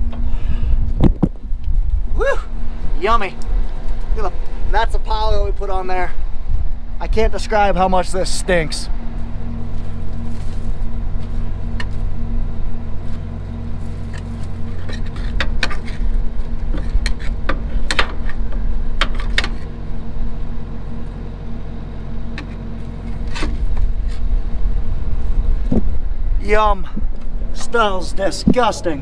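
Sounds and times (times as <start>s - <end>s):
diesel tractor engine idling: 0.0s - 29.0s
tool scraping metal sump: 14.0s - 18.5s.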